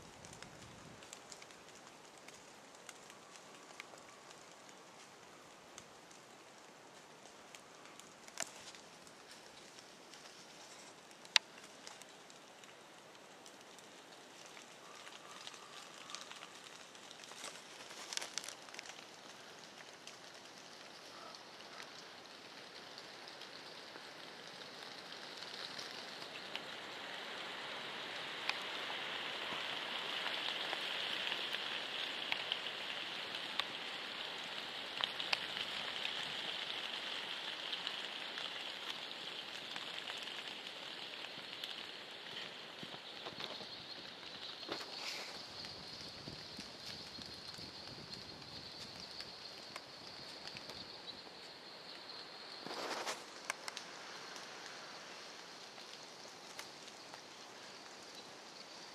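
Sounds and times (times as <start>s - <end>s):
light rain on leaves: 0.0s - 58.9s
ticks and rustles: 0.1s - 22.0s, 37.7s - 58.6s.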